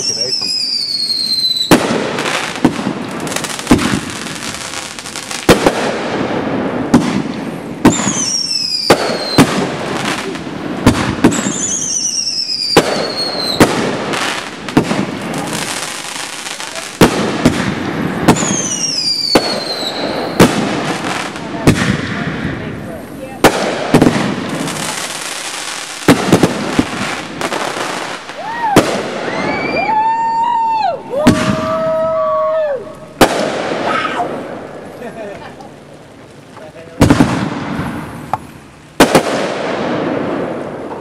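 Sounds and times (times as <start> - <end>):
falling firework whistle: 0.0 - 2.3, 7.8 - 9.6, 11.2 - 13.8, 18.3 - 20.6, 28.3 - 34.4
firework bangs: 0.0 - 41.0
firework crackling: 0.0 - 41.0.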